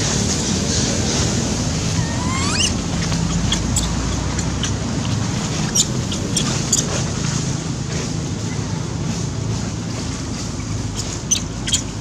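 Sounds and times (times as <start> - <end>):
baby monkey squeaking: 1.9 - 7.1, 10.9 - 12.0.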